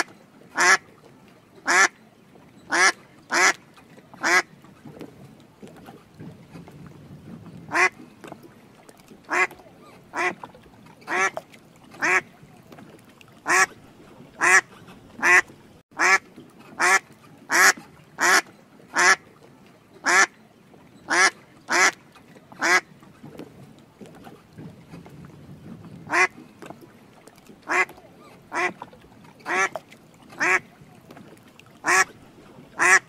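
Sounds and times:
duck quacking: 0:00.0 - 0:00.8, 0:01.6 - 0:01.9, 0:02.7 - 0:03.6, 0:04.2 - 0:04.5, 0:07.7 - 0:08.0, 0:09.3 - 0:10.4, 0:11.1 - 0:11.4, 0:12.0 - 0:12.3, 0:13.4 - 0:13.7, 0:14.4 - 0:16.2, 0:16.8 - 0:18.4, 0:19.0 - 0:19.2, 0:20.0 - 0:20.3, 0:21.1 - 0:22.0, 0:22.6 - 0:22.8, 0:26.1 - 0:26.3, 0:27.7 - 0:27.9, 0:28.5 - 0:28.8, 0:29.5 - 0:29.8, 0:30.4 - 0:30.6, 0:31.8 - 0:32.1, 0:32.8 - 0:33.0.

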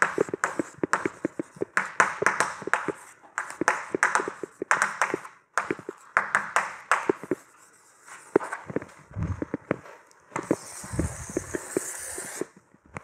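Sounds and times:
chalk tapping on a blackboard: 0:00.0 - 0:07.6, 0:10.4 - 0:12.6.

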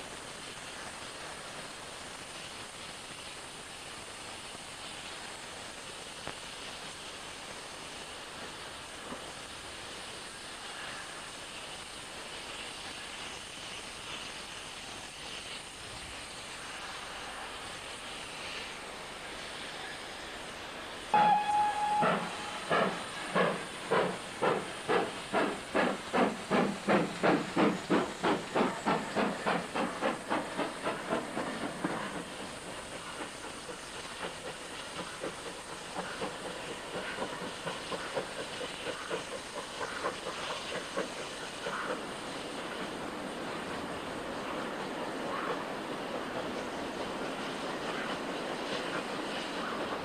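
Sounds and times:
steam hissing: 0:00.0 - 0:50.0
steam locomotive whistle: 0:21.1 - 0:24.0.

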